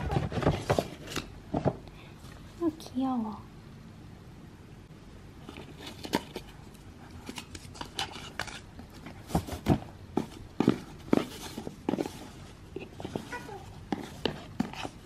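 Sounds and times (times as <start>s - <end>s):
gift box rustling and tapping: 7.2s - 15.0s.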